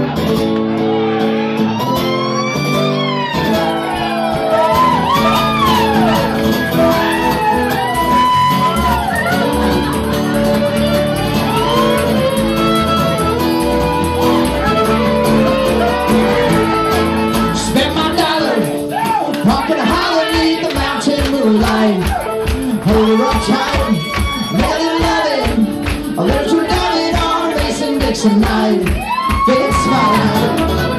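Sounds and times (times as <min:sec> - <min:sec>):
acoustic string band playing: 0:00.0 - 0:28.9
people singing: 0:17.6 - 0:30.9.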